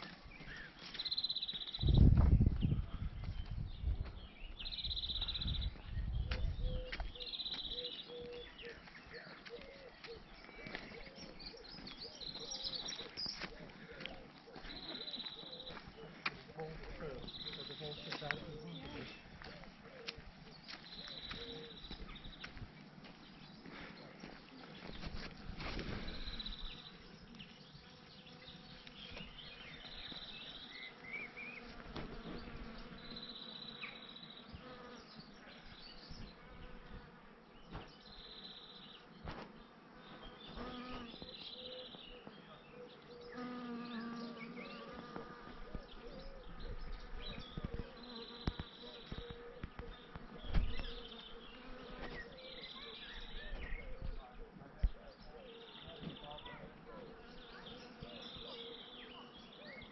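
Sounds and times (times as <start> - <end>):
woodland birdsong: 0.0 - 59.9
bees buzzing: 24.2 - 41.5, 43.2 - 52.8.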